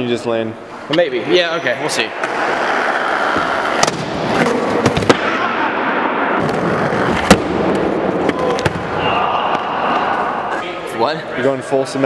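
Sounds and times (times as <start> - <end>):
skateboard wheels rolling: 2.2 - 5.1, 6.4 - 8.6.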